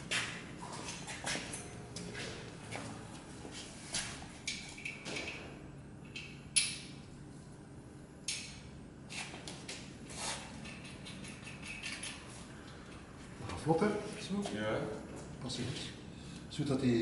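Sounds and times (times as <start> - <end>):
clicks and clinks of metal fittings: 10.6 - 12.3.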